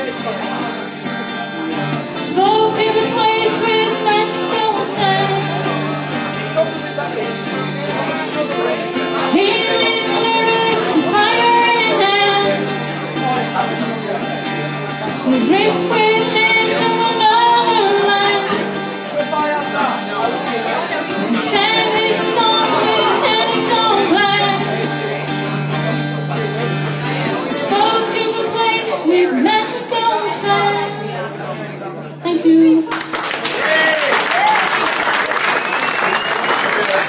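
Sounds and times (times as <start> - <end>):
strummed acoustic guitar: 0.0 - 32.9
woman singing: 2.2 - 5.7, 9.3 - 13.1, 15.2 - 18.8, 21.2 - 24.8, 27.5 - 31.2.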